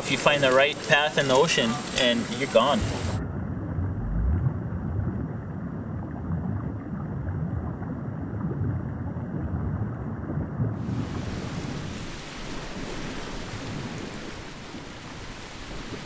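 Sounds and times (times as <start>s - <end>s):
water and surf rushing: 0.0s - 4.8s, 10.8s - 16.0s
rush of wind: 10.8s - 16.0s.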